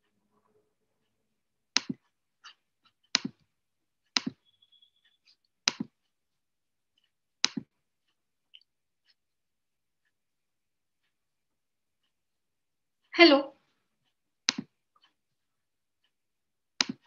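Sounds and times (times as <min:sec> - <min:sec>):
computer mouse clicks: 0:01.7 - 0:03.4, 0:04.1 - 0:05.9.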